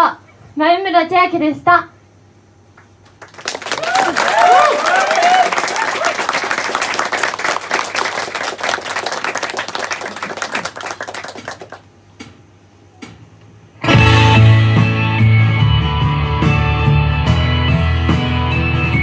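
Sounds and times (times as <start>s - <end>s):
audience applauding: 3.0s - 11.9s.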